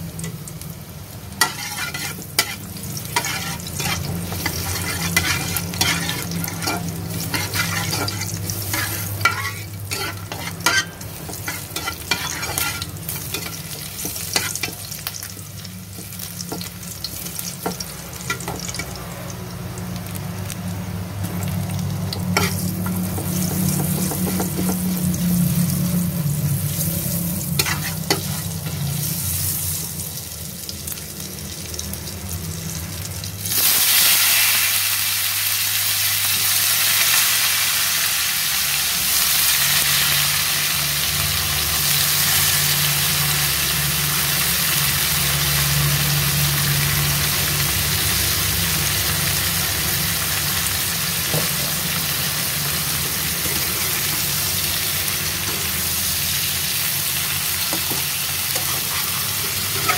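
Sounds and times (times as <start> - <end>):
food frying in a wok: 0.0 - 59.9
loud sizzle of oil: 0.0 - 59.9
metal spatula scraping pan: 1.4 - 14.8, 22.4 - 24.8, 27.5 - 28.8, 58.5 - 59.9.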